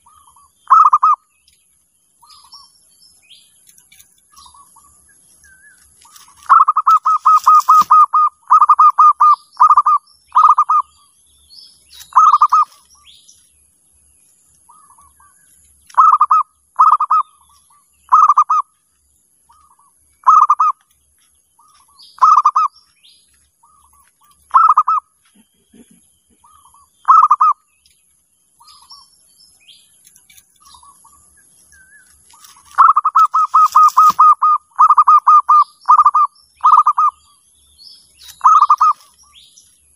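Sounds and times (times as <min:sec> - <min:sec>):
dove cooing: 0:00.0 - 0:01.2, 0:06.1 - 0:10.9, 0:12.0 - 0:12.8, 0:15.9 - 0:17.4, 0:18.1 - 0:18.7, 0:20.2 - 0:20.8, 0:21.7 - 0:22.7, 0:24.5 - 0:27.6, 0:32.4 - 0:37.2, 0:38.4 - 0:39.1
small birds chirping: 0:00.0 - 0:39.9.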